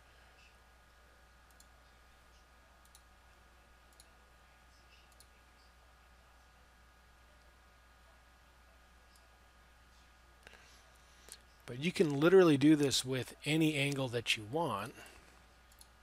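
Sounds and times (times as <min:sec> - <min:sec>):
low steady hum: 0:00.0 - 0:16.0
computer mouse clicks: 0:01.5 - 0:01.8, 0:02.8 - 0:03.1, 0:04.9 - 0:05.4, 0:15.7 - 0:16.0.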